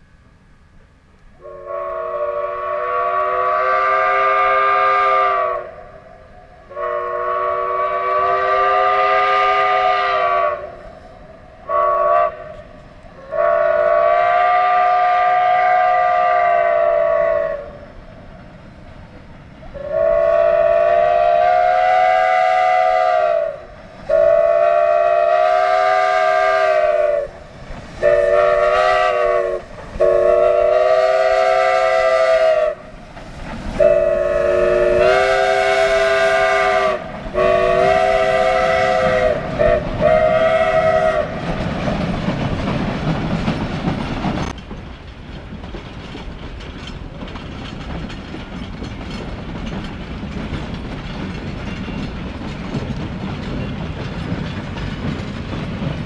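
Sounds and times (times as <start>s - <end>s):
steam locomotive chime whistle: 1.4s - 17.9s, 19.7s - 27.4s, 28.0s - 32.9s, 33.8s - 41.5s.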